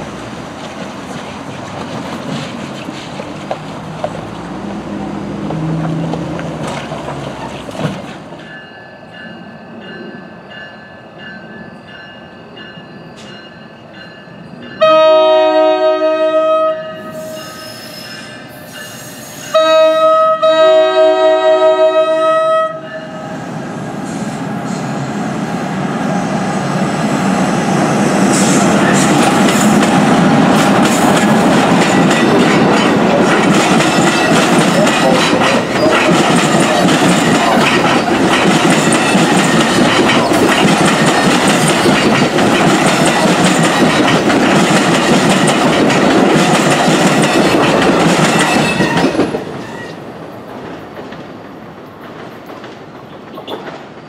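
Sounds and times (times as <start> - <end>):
wheels clattering on rails: 0.0 - 8.6, 28.3 - 54.0
train rumbling past: 0.0 - 54.0
crossing bell ringing: 8.3 - 15.4, 22.7 - 23.4, 33.8 - 42.3
train air horn blasts: 14.8 - 23.4.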